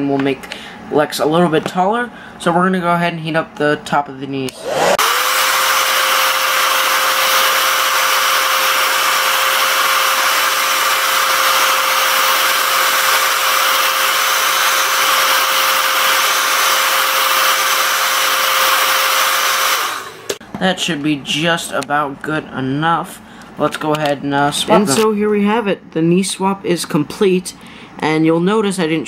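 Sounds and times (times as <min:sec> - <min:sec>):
hair dryer running: 0:04.5 - 0:20.4.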